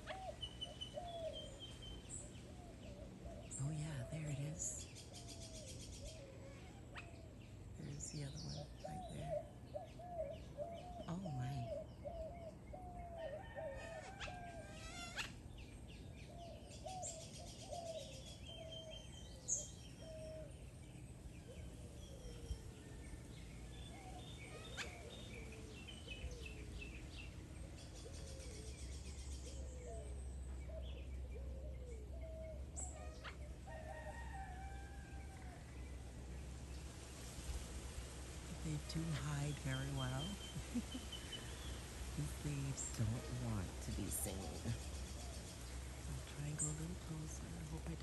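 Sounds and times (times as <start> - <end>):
bird chirps and trills: 0.0 - 13.5, 14.1 - 34.0.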